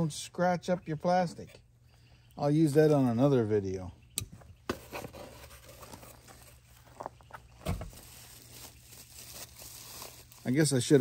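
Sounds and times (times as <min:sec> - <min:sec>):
cardboard box and foam rustling: 0:04.7 - 0:11.0.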